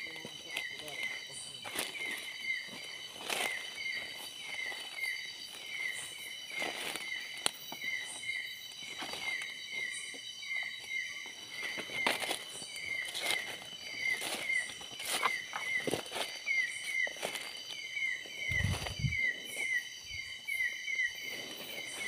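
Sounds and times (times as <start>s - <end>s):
night insect chorus: 0.0s - 22.0s
short insect chirp: 0.0s - 22.0s
footsteps rustling through leaves: 0.6s - 8.2s, 11.2s - 20.0s.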